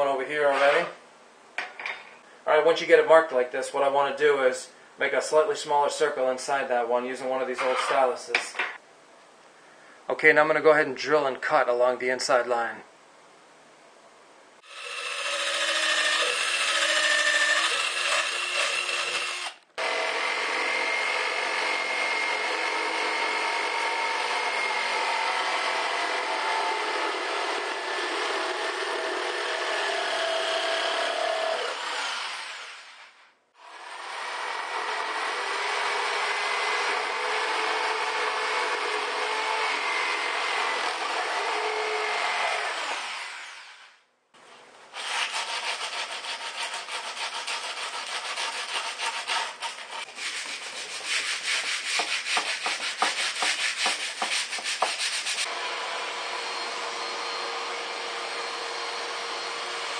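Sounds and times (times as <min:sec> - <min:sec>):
jigsaw cutting plywood: 0:14.6 - 0:32.9, 0:33.6 - 0:43.7, 0:45.0 - 0:50.1.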